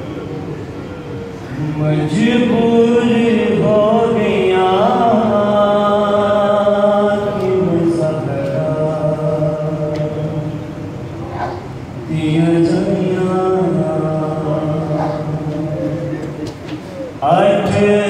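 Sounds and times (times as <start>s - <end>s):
man chanting a lament: 1.5s - 10.8s, 12.1s - 16.4s, 17.1s - 18.0s.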